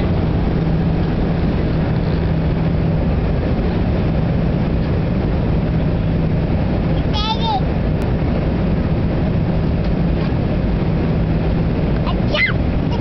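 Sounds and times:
airliner cabin engine drone: 0.0s - 13.0s
constant low hum: 0.0s - 13.0s.

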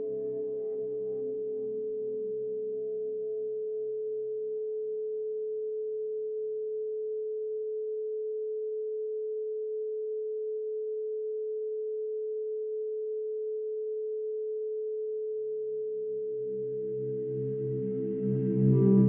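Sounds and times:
faint low tones: 16.3s - 19.0s
steady pure tone: 16.3s - 19.0s.

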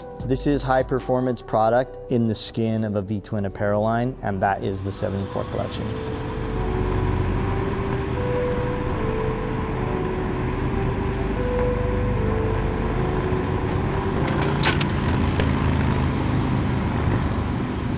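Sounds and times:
motorcycle engines rumbling: 4.4s - 17.9s.

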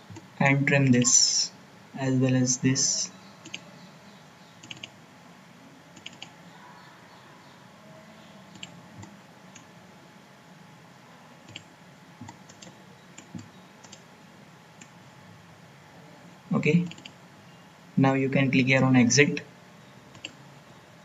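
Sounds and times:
faint steady hum: 0.0s - 21.0s
computer mouse clicking: 3.4s - 3.6s, 4.6s - 5.0s, 6.0s - 6.3s, 8.5s - 9.7s, 11.5s - 14.0s, 16.8s - 17.2s, 20.1s - 20.4s.

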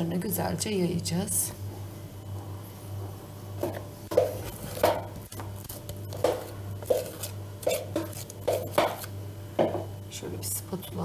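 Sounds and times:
low steady hum: 0.0s - 11.0s
spoon scraping against a bowl: 6.2s - 9.0s.

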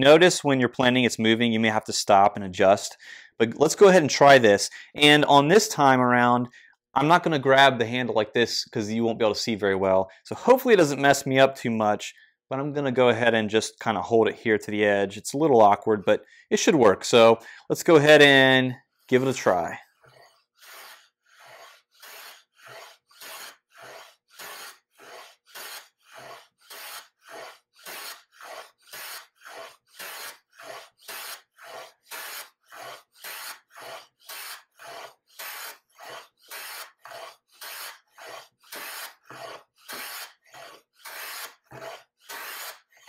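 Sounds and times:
hand plane shaving wood: 20.0s - 43.0s.

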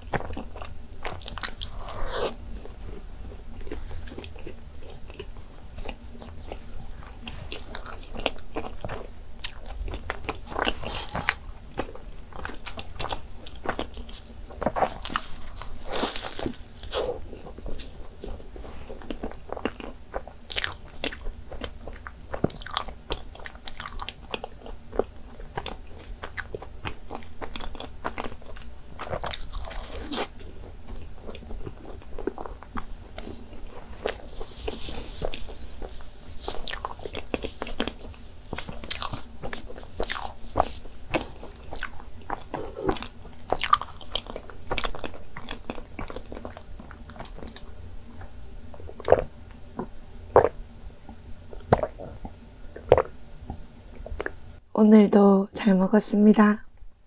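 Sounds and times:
chewing pastries: 0.0s - 54.4s
mouth clicks and smacks: 51.6s - 53.1s.

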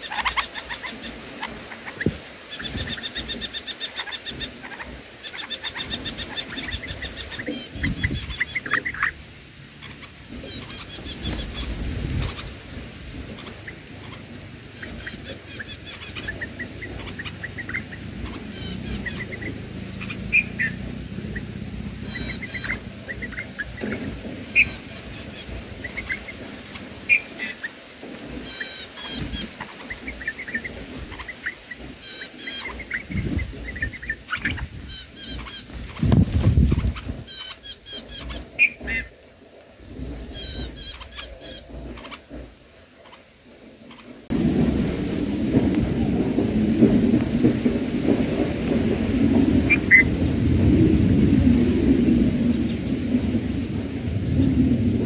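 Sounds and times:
birds chirping: 0.0s - 44.4s, 49.6s - 50.2s.

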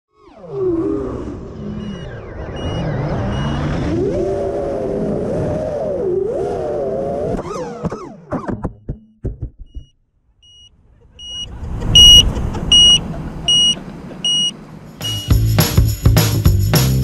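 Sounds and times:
drone motors whining: 0.2s - 8.5s, 12.0s - 15.3s
drone beeper beeping: 1.5s - 3.7s, 10.4s - 15.4s.

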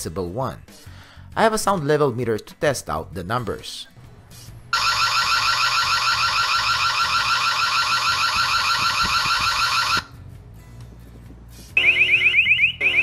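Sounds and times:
warbling electronic siren: 4.8s - 10.1s, 11.8s - 13.0s.

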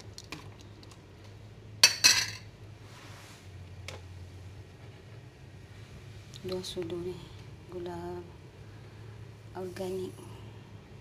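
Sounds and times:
low steady hum: 0.0s - 11.0s
metal spoon clinking on cookware: 1.8s - 2.5s.

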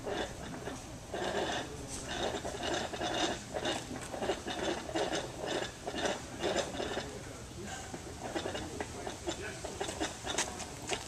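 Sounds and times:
rope squeaking through pulley: 0.0s - 7.2s.

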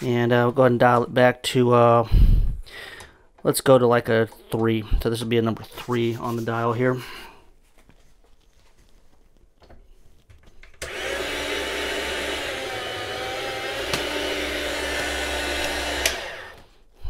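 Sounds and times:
meat slicer motor whining: 10.8s - 16.7s.

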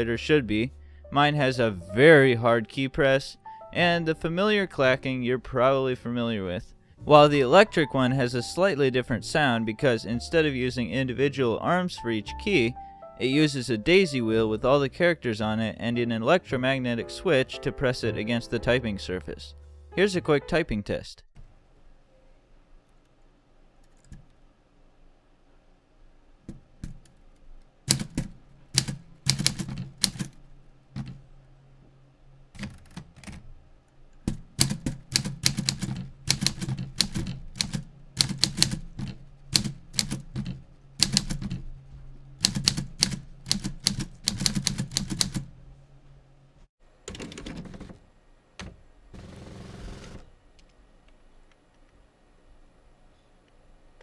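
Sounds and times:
low steady hum: 0.0s - 44.3s
typewriter keystrokes clacking: 27.9s - 30.3s, 34.2s - 41.6s, 42.4s - 45.5s.

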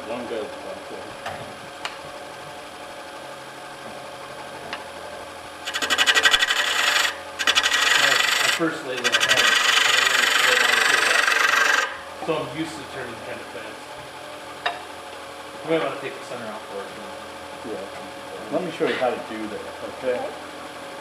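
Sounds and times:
gouge rasping into wood: 5.6s - 12.0s
wood lathe running: 5.6s - 12.5s.

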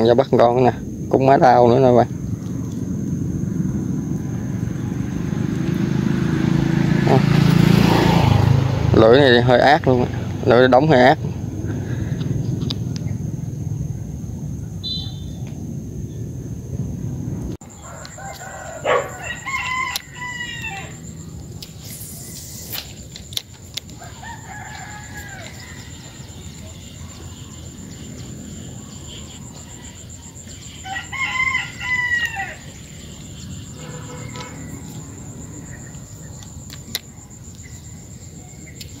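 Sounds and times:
steady high-pitched whine: 0.0s - 7.7s, 8.9s - 39.0s
roosters crowing: 17.6s - 21.4s, 23.8s - 36.4s.

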